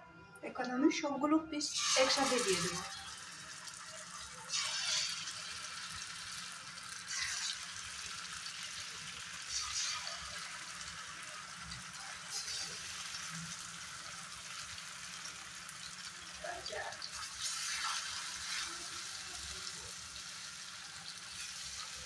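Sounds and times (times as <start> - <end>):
fish sizzling in hot oil: 1.6 - 22.0.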